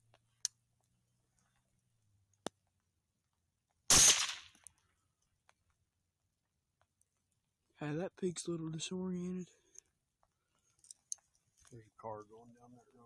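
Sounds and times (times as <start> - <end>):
rifle shot with echo: 3.9 - 4.6.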